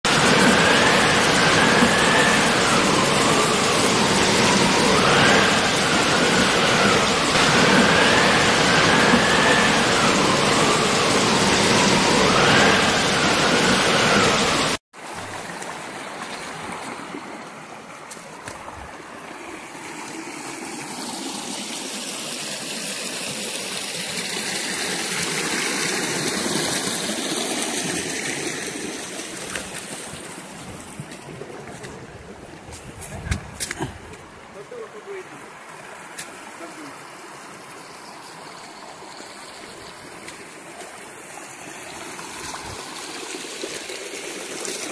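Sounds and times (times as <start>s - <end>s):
loud rushing noise: 0.0s - 14.8s
stream flowing over stones: 0.0s - 44.9s
faint rising and falling tone: 0.1s - 14.8s.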